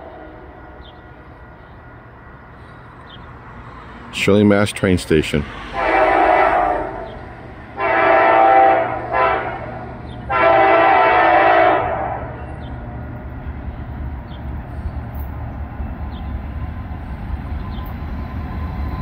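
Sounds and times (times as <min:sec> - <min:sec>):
train low rumble: 0:00.0 - 0:19.0
locomotive air horn blasts: 0:05.7 - 0:12.4.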